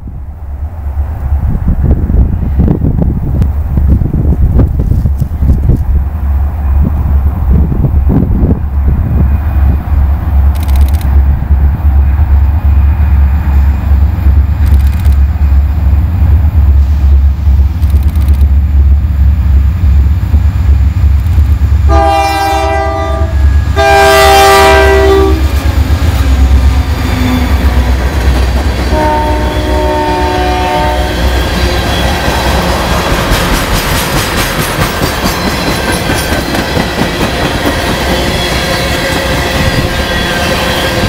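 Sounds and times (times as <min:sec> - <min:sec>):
low train rumble: 0:00.0 - 0:41.0
train air horn blasts: 0:21.9 - 0:25.5, 0:28.9 - 0:32.2.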